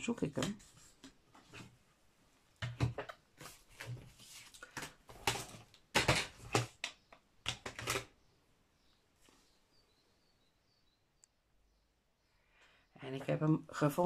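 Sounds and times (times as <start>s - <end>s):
paper rustling and knocking: 2.6s - 6.9s.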